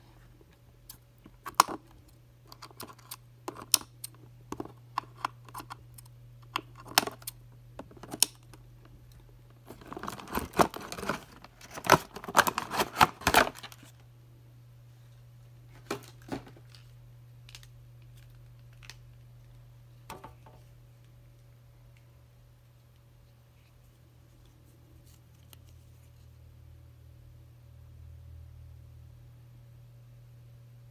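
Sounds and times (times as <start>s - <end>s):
cardboard packaging rustling: 9.6s - 14.0s.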